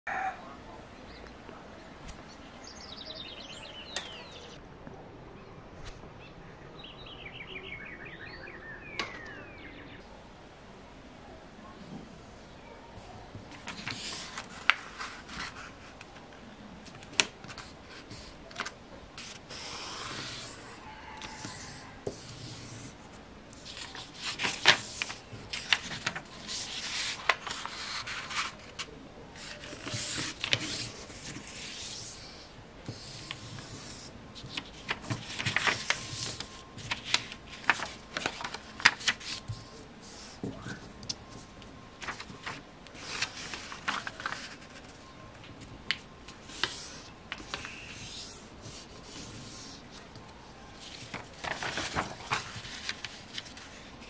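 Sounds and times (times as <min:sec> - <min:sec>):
paper being folded: 0:13.5 - 0:54.0.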